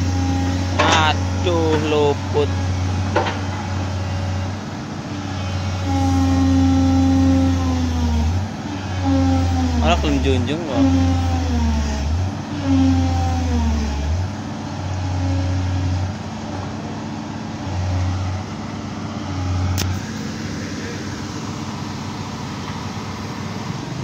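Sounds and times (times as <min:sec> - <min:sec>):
excavator diesel engine labouring: 0:00.0 - 0:24.0
sharp click: 0:19.8 - 0:20.0.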